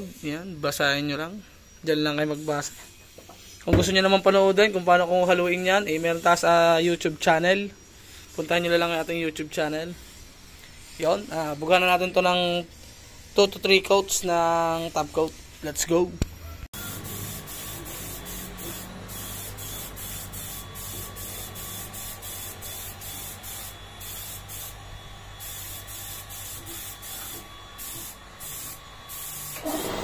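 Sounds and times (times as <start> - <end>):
spray gun hissing: 16.8 - 30.0.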